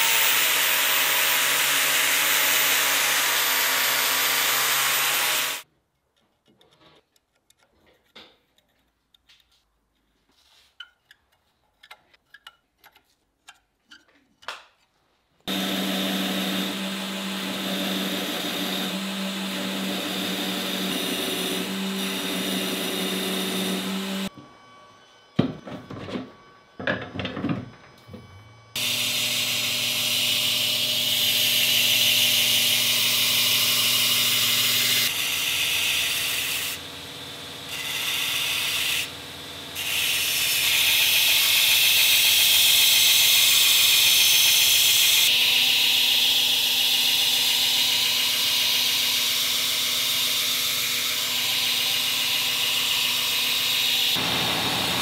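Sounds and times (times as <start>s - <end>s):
belt grinder grinding steel: 0.0s - 5.6s, 15.5s - 24.3s, 28.8s - 55.0s
angle grinder grinding steel: 0.0s - 5.7s, 15.5s - 26.2s, 28.8s - 55.0s
faint clicks and handling: 5.9s - 9.8s.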